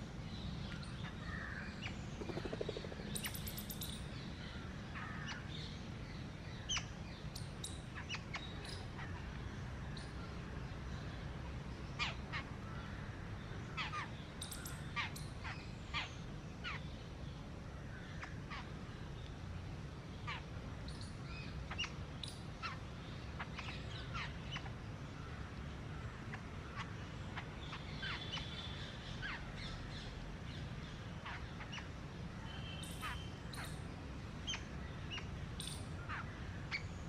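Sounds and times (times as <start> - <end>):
low background rumble: 0.0 - 7.2
harsh animal calls: 2.2 - 3.1
buzzy calls: 2.2 - 3.5.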